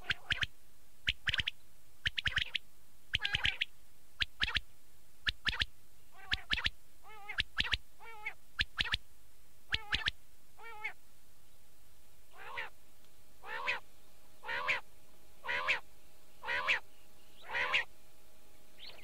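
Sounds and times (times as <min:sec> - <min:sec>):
quail calling sharp notes: 0:00.0 - 0:04.6, 0:05.2 - 0:09.0, 0:09.7 - 0:11.0, 0:12.3 - 0:12.8, 0:13.4 - 0:13.8, 0:14.4 - 0:15.8, 0:16.4 - 0:16.8, 0:17.4 - 0:17.9
wavering nasal quail calls: 0:00.0 - 0:04.6, 0:05.2 - 0:09.0, 0:09.7 - 0:11.0, 0:12.3 - 0:12.8, 0:13.4 - 0:13.8, 0:14.4 - 0:17.9, 0:18.8 - 0:19.0.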